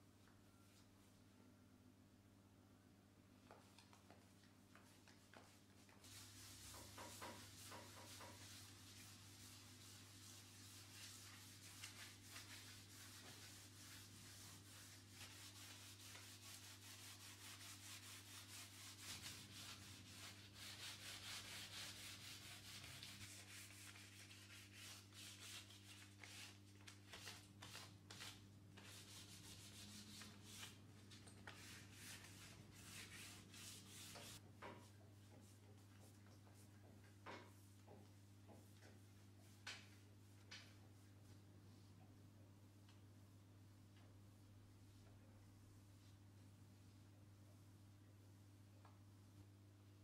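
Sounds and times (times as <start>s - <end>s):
hand sanding wood: 5.4s - 26.6s, 27.2s - 30.8s, 31.5s - 34.4s.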